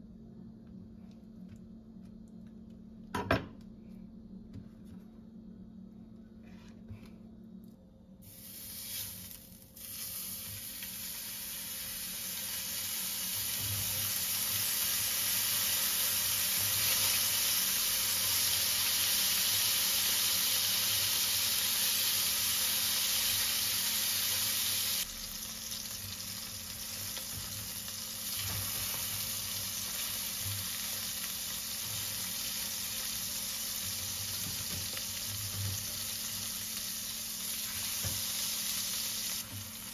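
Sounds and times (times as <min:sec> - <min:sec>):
cheese sizzling in hot oil: 0:08.2 - 0:39.9.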